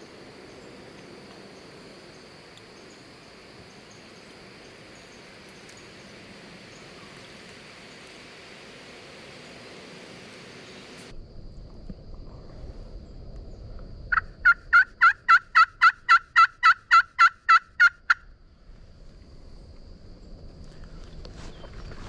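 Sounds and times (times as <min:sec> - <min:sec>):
turkey yelps: 0:14.1 - 0:18.2.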